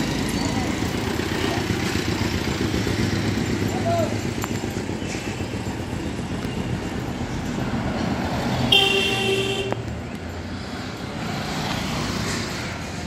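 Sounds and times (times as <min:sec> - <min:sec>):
street traffic rumbling: 0:00.0 - 0:13.0
vehicle horn: 0:08.7 - 0:09.8.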